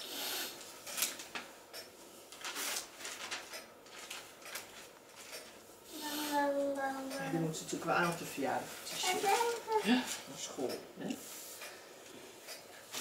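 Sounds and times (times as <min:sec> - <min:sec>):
paper crinkling: 0:02.3 - 0:05.6.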